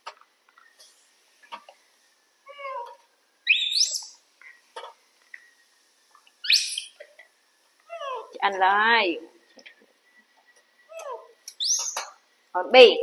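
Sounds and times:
monkey warbling call: 0:06.4 - 0:07.0, 0:07.9 - 0:08.3
monkeys squealing: 0:06.5 - 0:07.0.

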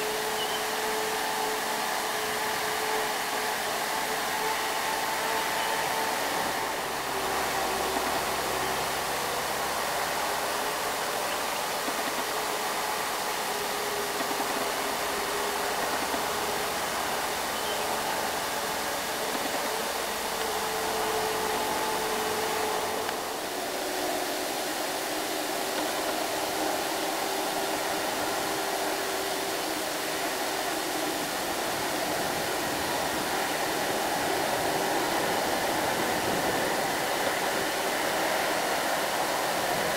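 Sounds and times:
trucks passing on road: 0:13.3 - 0:39.9.

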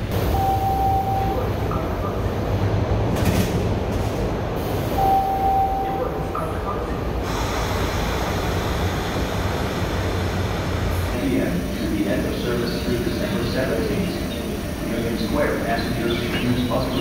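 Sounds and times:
low rumble of standing train: 0:00.0 - 0:17.0
door-closing warning tone: 0:00.2 - 0:02.3, 0:05.0 - 0:06.6.

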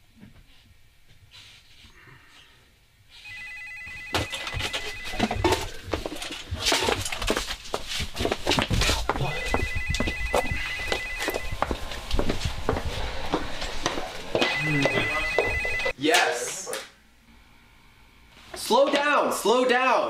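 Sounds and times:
telephone ringing: 0:03.2 - 0:06.0, 0:09.2 - 0:11.8, 0:14.3 - 0:16.0
footsteps hurrying up stairs: 0:03.9 - 0:15.9.

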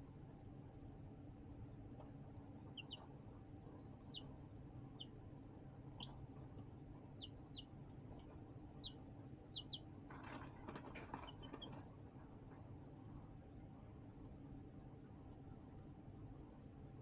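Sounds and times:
steady low hum: 0:00.0 - 0:17.0
baby chicks peeping: 0:02.0 - 0:12.6
scratchy rustle: 0:10.1 - 0:11.8.

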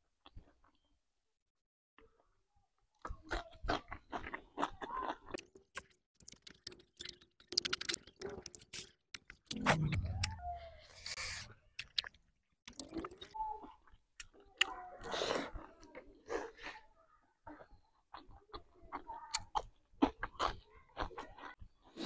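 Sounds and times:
mouth clicks: 0:03.0 - 0:14.8
wet chewing: 0:03.0 - 0:22.0.

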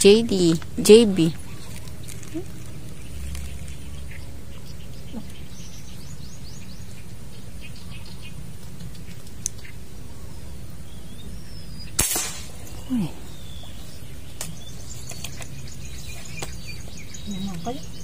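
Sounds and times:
birds chirping: 0:00.0 - 0:18.0
airgun sharp crack: 0:12.0 - 0:13.0.

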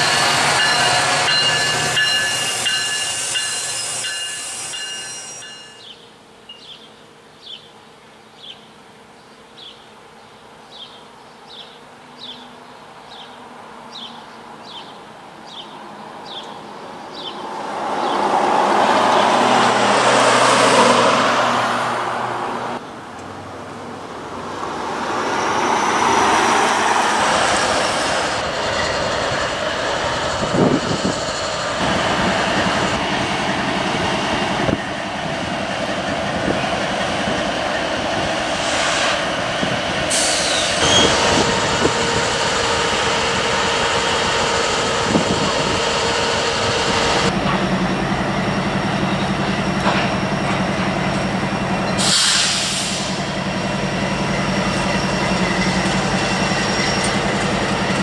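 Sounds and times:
freight cars rolling on rails: 0:00.0 - 0:05.9, 0:24.4 - 0:58.0
locomotive engines running: 0:24.8 - 0:58.0.

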